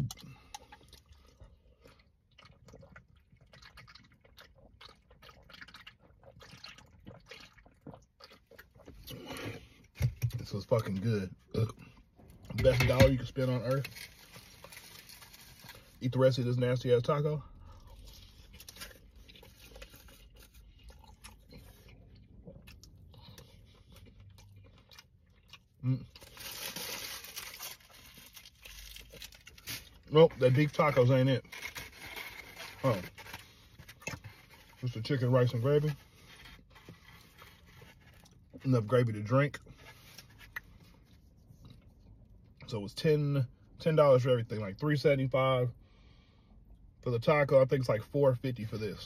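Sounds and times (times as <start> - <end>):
person chewing: 0.0 - 9.9, 17.6 - 30.1
person gulping and swallowing: 0.0 - 10.4, 17.6 - 26.2.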